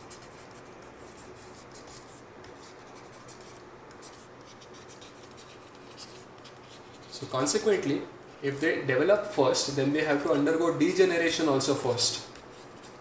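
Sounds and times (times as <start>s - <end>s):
stylus scratching on tablet: 0.0s - 7.7s, 12.1s - 13.0s.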